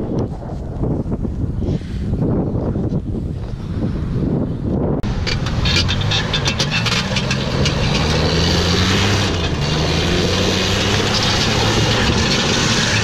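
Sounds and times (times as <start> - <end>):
truck engine running hard: 5.0 - 13.0
tyres scrubbing on gravel: 5.1 - 13.0.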